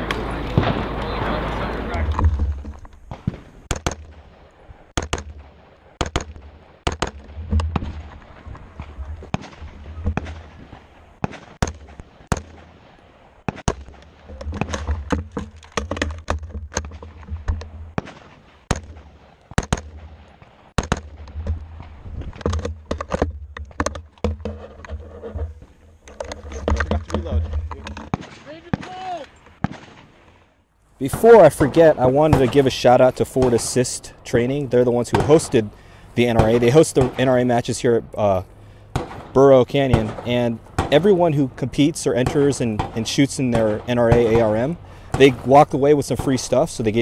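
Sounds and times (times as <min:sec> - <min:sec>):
rifle firing single shots: 0:03.0 - 0:14.9, 0:17.9 - 0:22.0, 0:28.0 - 0:30.4, 0:31.0 - 0:37.9, 0:38.8 - 0:47.0.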